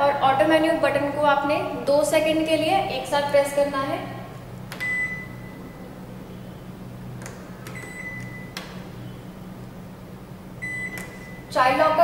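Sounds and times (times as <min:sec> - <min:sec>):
low steady hum: 0:00.0 - 0:12.0
microwave beeps: 0:04.8 - 0:05.8, 0:07.7 - 0:09.4, 0:10.6 - 0:11.5.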